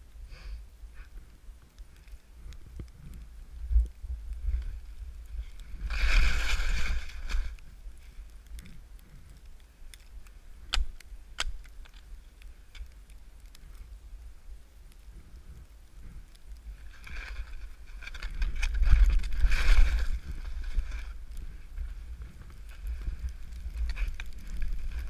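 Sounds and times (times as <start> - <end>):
steady low rumble: 0.0 - 25.0
skis scraping across snow: 4.4 - 8.8, 16.1 - 25.0
skis sliding over snow: 4.4 - 9.3, 15.1 - 25.0.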